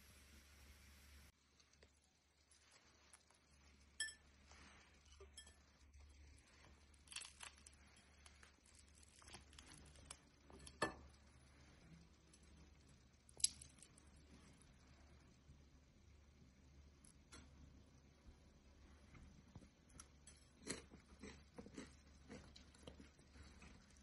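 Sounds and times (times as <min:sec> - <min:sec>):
bread being torn: 0:06.7 - 0:10.8, 0:13.3 - 0:14.0.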